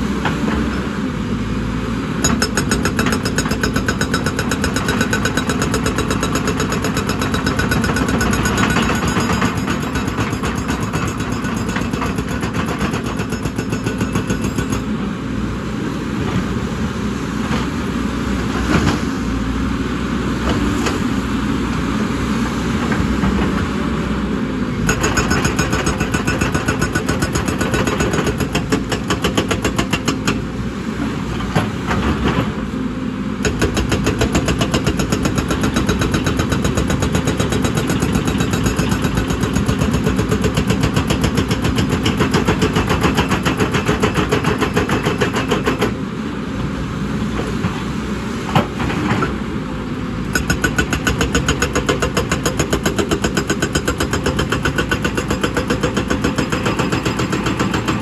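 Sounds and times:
hydraulic rock breaker hammering: 2.2 - 14.9, 24.8 - 30.4, 33.4 - 46.0, 50.3 - 58.0.

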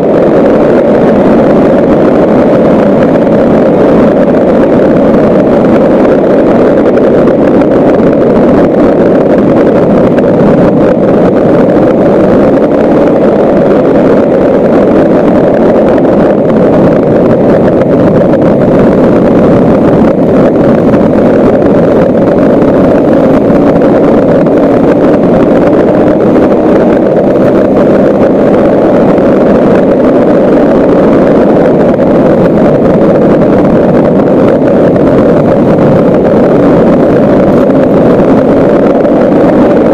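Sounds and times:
wind on microphone: 0.0 - 39.9.

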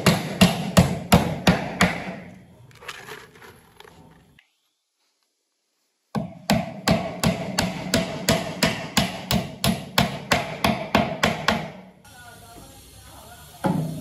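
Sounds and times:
hand hammer striking: 6.2 - 11.8.

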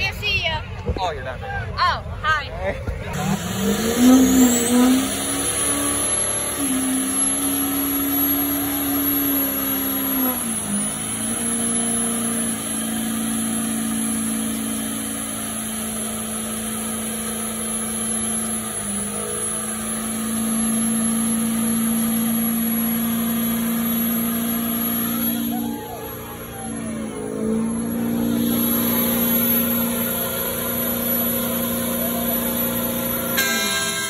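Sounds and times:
diesel engine at high revs: 2.8 - 34.0.

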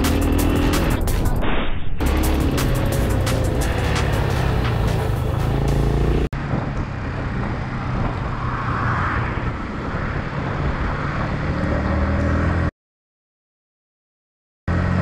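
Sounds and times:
wind and road noise: 0.0 - 12.7, 14.7 - 15.0
motorcycle engine running: 2.0 - 7.0.

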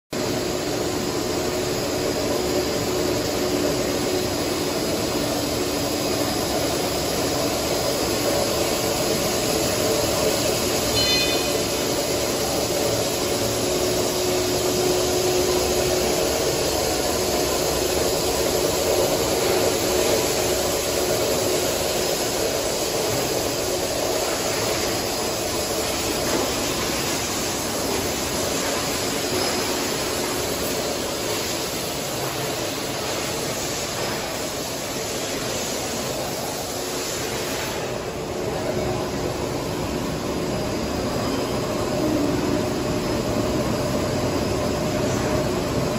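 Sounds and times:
rushing whir of paper rollers: 0.2 - 10.9, 11.5 - 45.9
brief high chirp: 10.9 - 11.6.

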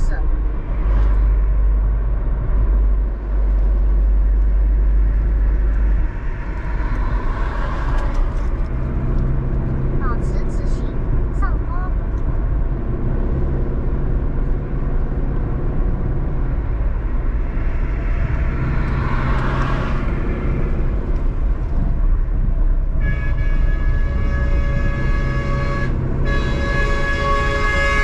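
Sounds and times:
vehicle passing: 0.0 - 22.9
vehicle road and engine rumble: 0.0 - 28.0
vehicle horn blast: 23.0 - 28.0.

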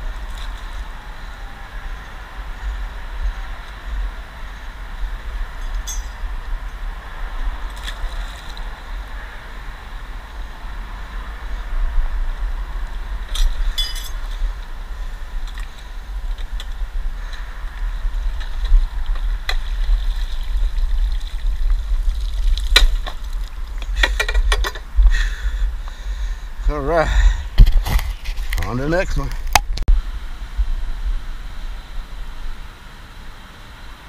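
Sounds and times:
steady low rumble: 0.0 - 33.3
metal chair clanking against concrete: 13.4 - 14.2, 23.9 - 24.9.

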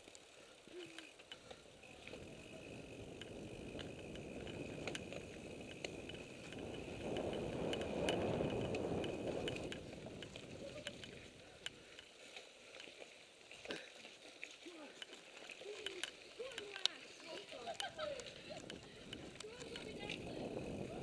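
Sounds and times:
bike clicks and rattles: 0.6 - 14.1, 14.9 - 21.0
tyre and wind rumble: 2.2 - 11.4, 17.9 - 21.0.

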